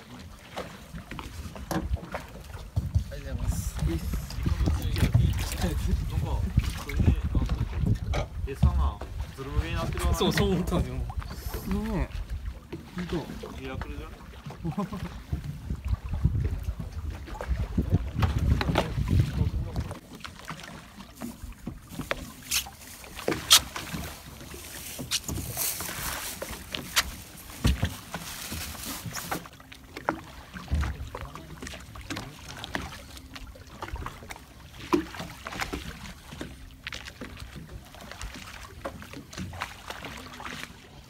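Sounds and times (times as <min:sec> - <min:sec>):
water splashing against hull: 0:00.0 - 0:41.0.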